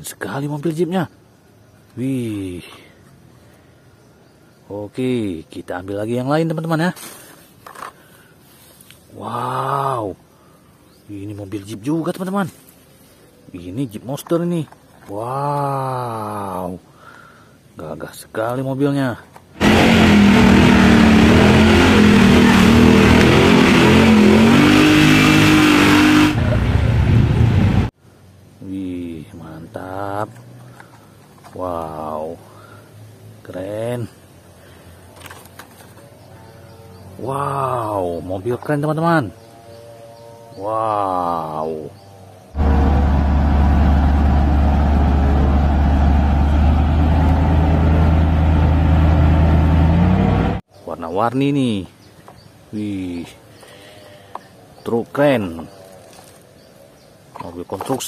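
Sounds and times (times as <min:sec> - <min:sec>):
off-road engine revving: 0:19.6 - 0:27.9, 0:41.9 - 0:50.6.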